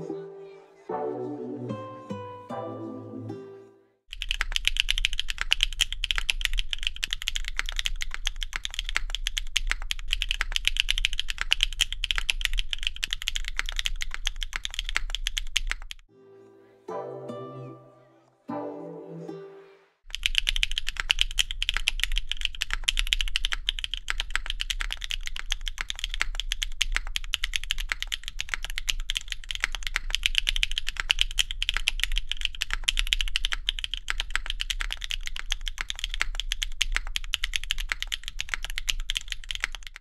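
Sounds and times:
fast mechanical keyboard typing: 0:04.1 - 0:16.0, 0:20.1 - 0:40.0.

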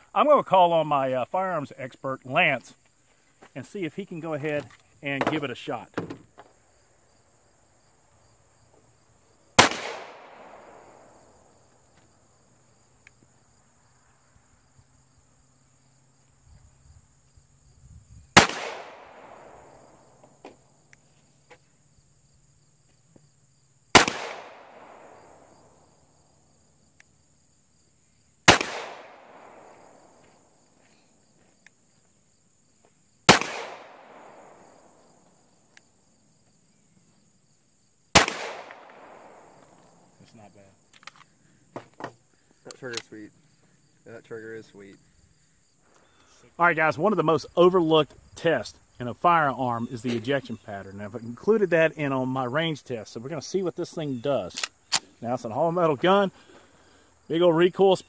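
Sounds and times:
pistol shots with echo: 0:09.6 - 0:11.5, 0:18.4 - 0:20.2, 0:23.9 - 0:25.8, 0:28.4 - 0:30.0, 0:33.3 - 0:35.0, 0:38.2 - 0:39.7.

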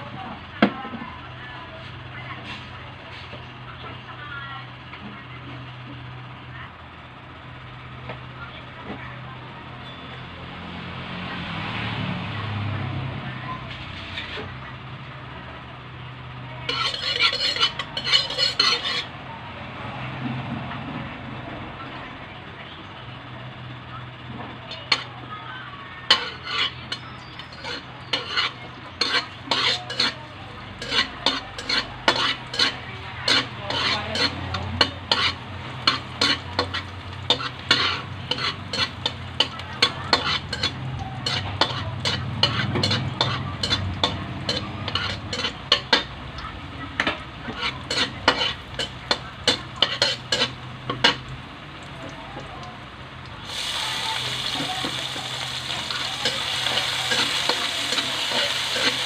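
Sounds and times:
metal spatula scraping wok: 0:13.7 - 0:14.5, 0:16.6 - 0:19.2, 0:24.7 - 0:25.2, 0:26.0 - 0:46.2, 0:47.0 - 0:51.3, 0:53.5 - 0:59.0
garlic sizzling in oil: 0:16.7 - 0:19.1, 0:26.0 - 0:52.0, 0:52.8 - 0:59.0.

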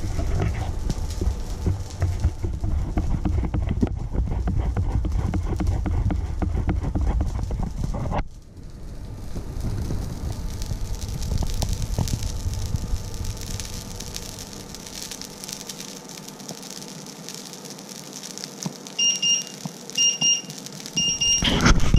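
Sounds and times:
oil sizzling and popping in a pan: 0:00.0 - 0:21.9.

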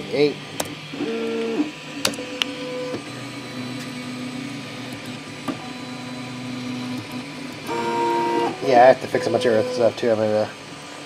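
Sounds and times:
stepper motors whining: 0:00.2 - 0:11.0.

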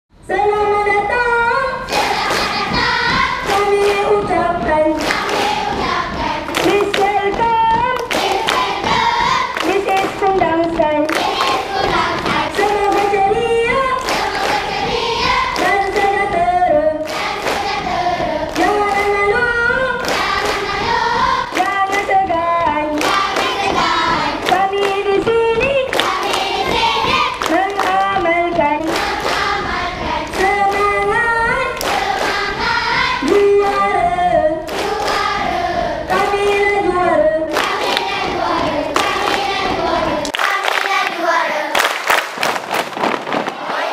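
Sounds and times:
children chanting in unison: 0:01.8 - 0:03.5, 0:08.1 - 0:09.6, 0:11.1 - 0:13.0, 0:17.1 - 0:21.6, 0:23.0 - 0:24.4, 0:25.9 - 0:27.5, 0:31.7 - 0:33.3, 0:34.7 - 0:36.6, 0:37.5 - 0:41.8, 0:43.5 - 0:43.9
rhythmic hand clapping: 0:01.8 - 0:43.9.

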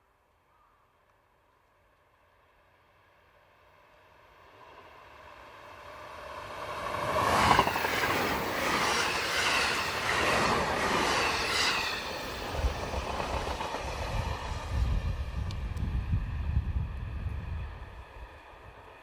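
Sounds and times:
electric train passing: 0:02.1 - 0:19.0.

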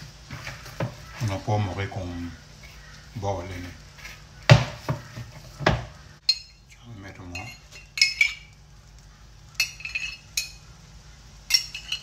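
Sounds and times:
dull thump: 0:04.5 - 0:05.9
metal spoon clinking glass jar: 0:06.3 - 0:06.7, 0:07.3 - 0:08.5, 0:09.6 - 0:10.6, 0:11.5 - 0:12.0.

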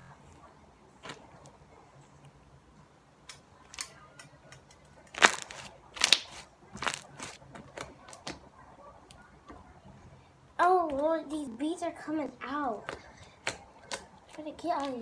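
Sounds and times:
slime popping and crackling: 0:05.1 - 0:08.4.

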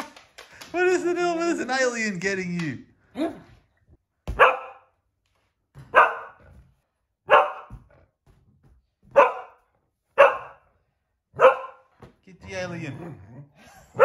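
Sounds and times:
dog barking: 0:04.3 - 0:04.9, 0:05.9 - 0:06.5, 0:07.3 - 0:07.9, 0:09.1 - 0:10.7, 0:11.4 - 0:11.9.

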